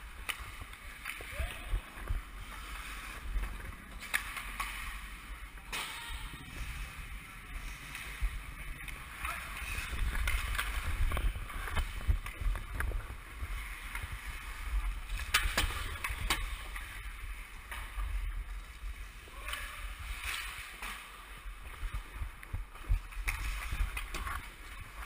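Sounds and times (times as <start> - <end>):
skate blades scraping ice: 0.0 - 25.0
stick and puck clicks on ice: 0.1 - 2.2, 3.2 - 6.4, 7.9 - 13.1, 15.0 - 18.0, 22.4 - 25.0.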